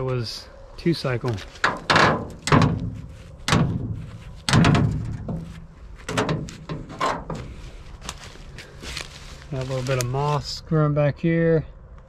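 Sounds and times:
metal door knocking shut: 1.6s - 5.5s, 6.1s - 7.4s.

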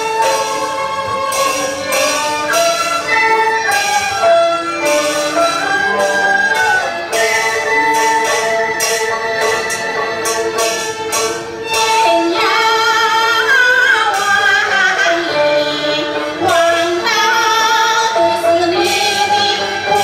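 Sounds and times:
flute: 0.0s - 20.0s
violin: 0.0s - 20.0s
woman singing with vibrato: 11.8s - 20.0s.

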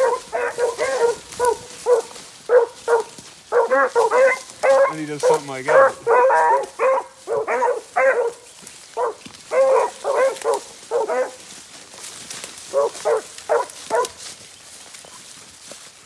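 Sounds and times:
hound barking in short barks: 0.0s - 8.4s, 9.0s - 11.4s, 12.7s - 14.2s.

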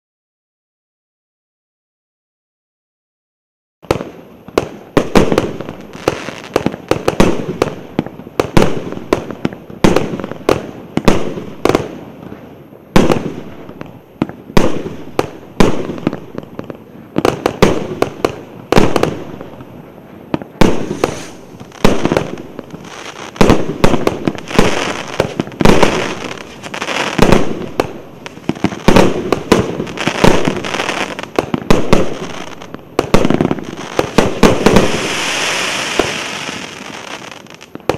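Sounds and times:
fireworks crackling hiss: 3.9s - 37.9s
fireworks launch reports and bursts: 20.5s - 37.9s.

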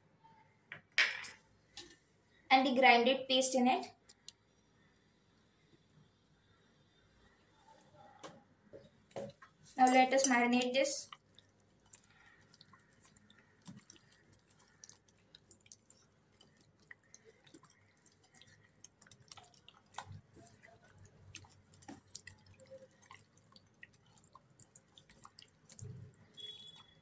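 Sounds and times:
wet squelching of paste on meat: 9.2s - 27.0s
small clicks in steel bowl: 9.8s - 10.8s.

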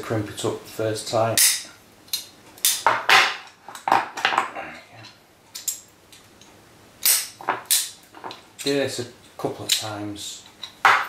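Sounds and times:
locking pliers clicking metallically: 5.0s - 10.8s.

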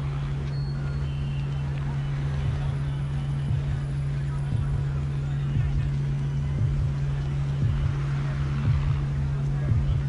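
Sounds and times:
low drone: 0.0s - 10.0s
short low thumps: 2.2s - 10.0s.

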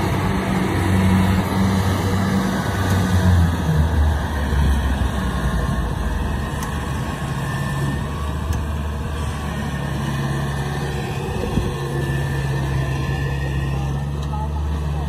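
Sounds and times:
diesel engine droning: 0.0s - 15.0s.

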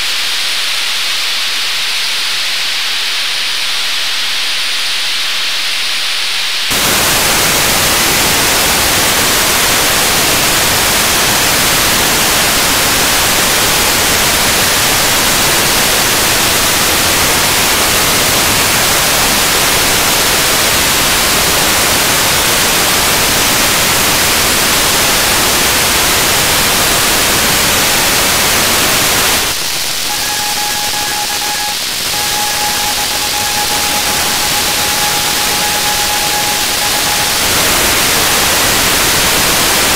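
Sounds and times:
radio static hiss: 0.0s - 39.9s
steady beat tone of carrier: 30.0s - 38.2s.

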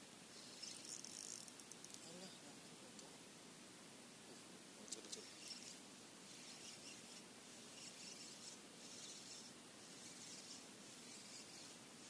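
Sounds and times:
faint high-pitched chirping: 0.3s - 2.4s, 4.9s - 12.0s.

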